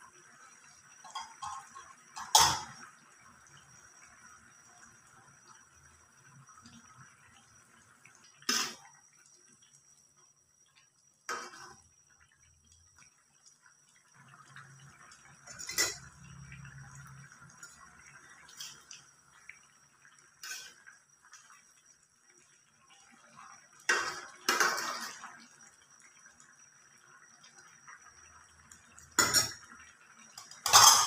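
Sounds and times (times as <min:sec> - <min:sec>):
metal ladle clanking on wok: 0:30.6 - 0:31.0.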